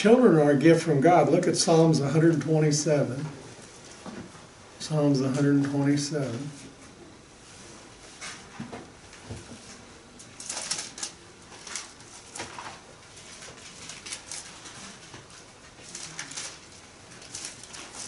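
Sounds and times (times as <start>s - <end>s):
thin pages rustling: 9.6s - 18.0s.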